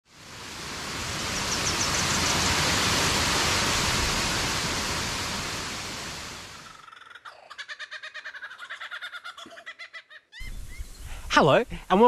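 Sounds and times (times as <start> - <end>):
waterfall rushing into pool: 0.0 - 6.8.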